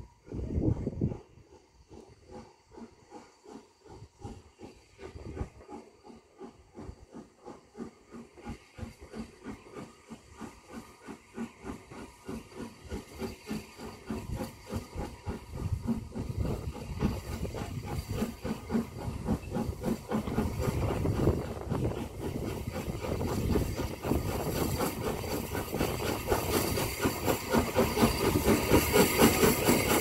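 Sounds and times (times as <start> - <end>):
steam locomotive exhaust beating: 0.0 - 30.0.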